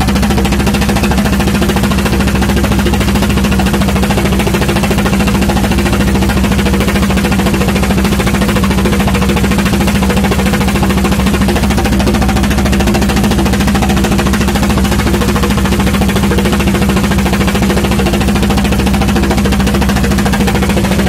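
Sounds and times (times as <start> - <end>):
boat engine running: 0.0 - 21.0.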